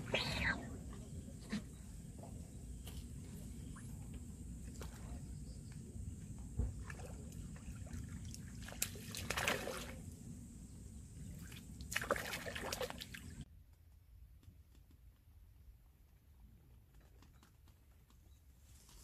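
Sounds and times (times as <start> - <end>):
low steady rumble: 0.0 - 13.5
fish splashing in water: 6.8 - 10.0, 11.4 - 13.4.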